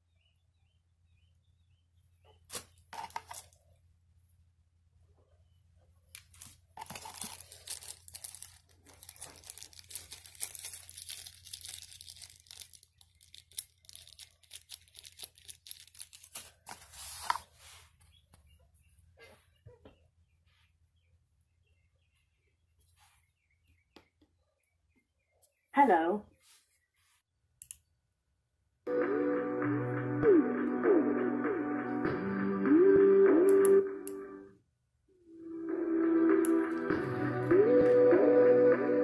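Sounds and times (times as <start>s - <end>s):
plastic bag crinkling: 2.5s - 3.6s, 6.2s - 17.5s.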